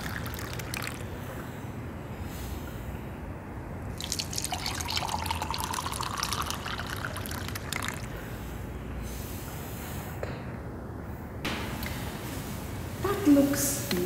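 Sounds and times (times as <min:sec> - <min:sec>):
tea pouring into a cup: 0:00.0 - 0:01.1, 0:04.0 - 0:08.1.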